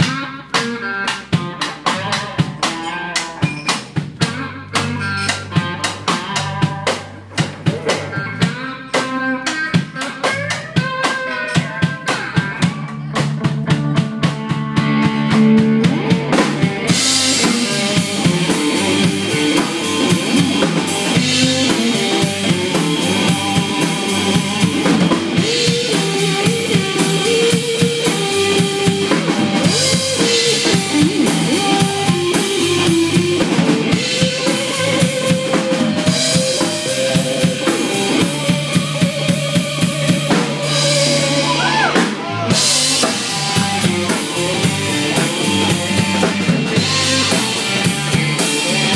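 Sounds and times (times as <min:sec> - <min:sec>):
electric guitar lead: 0:00.0 - 0:48.9
rock drum kit: 0:00.0 - 0:48.9.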